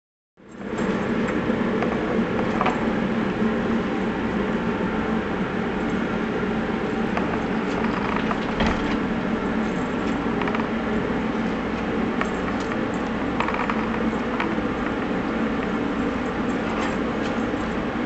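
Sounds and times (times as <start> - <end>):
mechanical hum and rush: 0.4 - 18.0.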